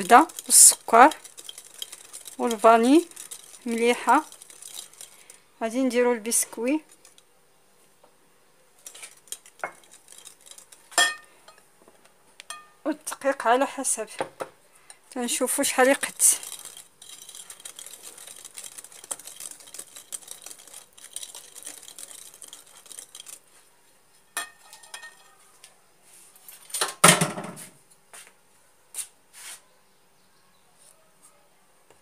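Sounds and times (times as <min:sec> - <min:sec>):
whisk beating batter in glass bowl: 0:00.0 - 0:07.2, 0:08.8 - 0:11.1, 0:15.3 - 0:23.6.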